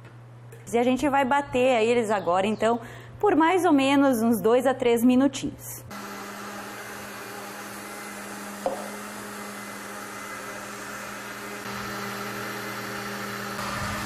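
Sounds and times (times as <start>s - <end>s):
blender motor running: 5.9s - 14.0s.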